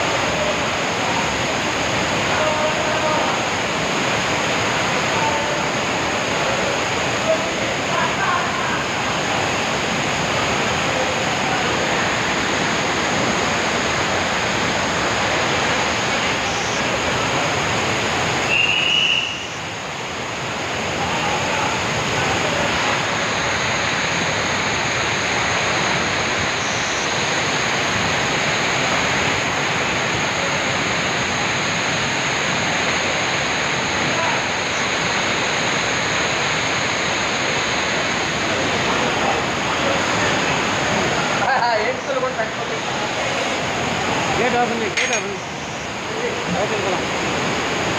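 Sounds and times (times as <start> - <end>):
floodwater rushing: 0.0 - 47.9
brief high squeal: 18.5 - 19.6, 26.6 - 27.2.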